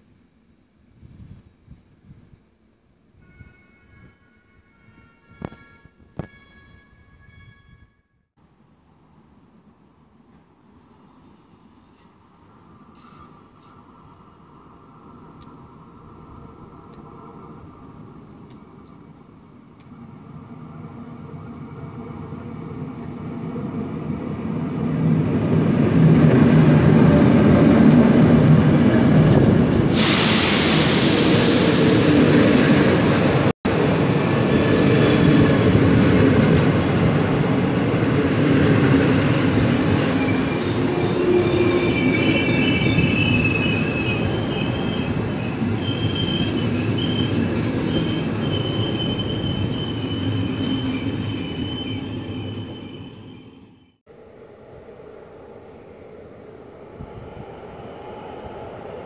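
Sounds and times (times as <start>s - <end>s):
train wheels rumbling on rails: 21.7s - 53.6s
loud hissing rush: 29.8s - 32.6s
wheel and brake squeals: 40.1s - 54.0s.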